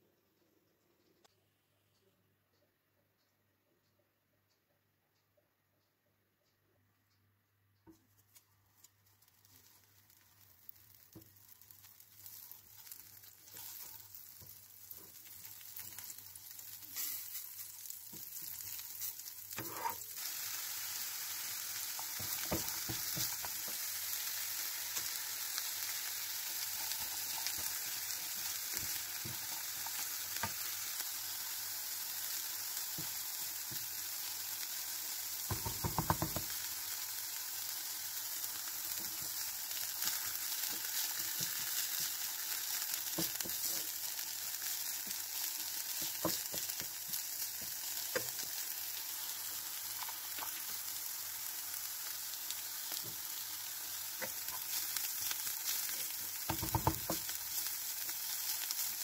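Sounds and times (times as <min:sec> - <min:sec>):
oil crackling in a pan: 0:08.2 - 0:59.0
onions sizzling in oil: 0:08.8 - 0:59.0
spatula scraping a pan: 0:19.5 - 0:20.1.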